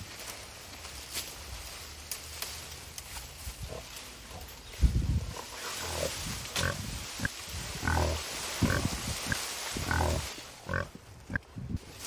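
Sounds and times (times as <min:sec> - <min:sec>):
pig grunting: 0:05.2 - 0:08.9, 0:09.8 - 0:11.4.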